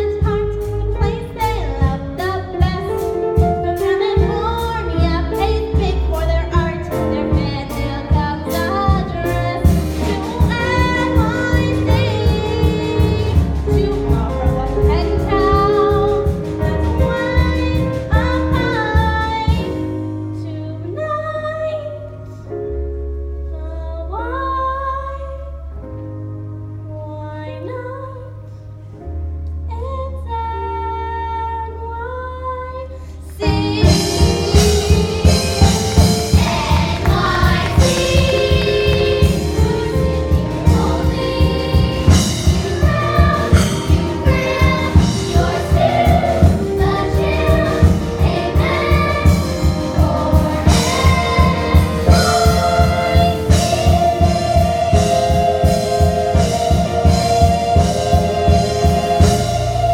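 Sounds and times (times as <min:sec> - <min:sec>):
ensemble singing with accompaniment: 0:01.3 - 0:20.9, 0:32.8 - 0:59.9
driving beat: 0:33.5 - 0:59.9.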